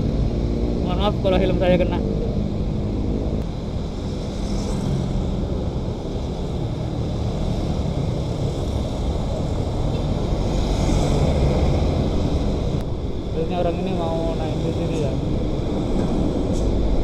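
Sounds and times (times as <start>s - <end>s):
passing road traffic: 0.0s - 17.0s.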